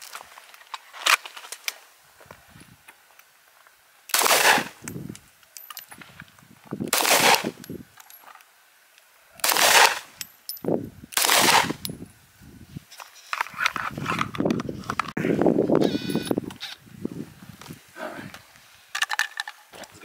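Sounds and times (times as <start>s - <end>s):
gunshots: 4.1s - 4.8s, 6.9s - 7.6s, 9.4s - 10.1s, 11.2s - 11.8s.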